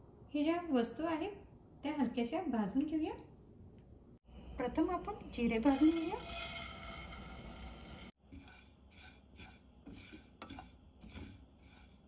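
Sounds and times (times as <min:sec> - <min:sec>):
spatula scraping seeds in pan: 0:05.5 - 0:12.0.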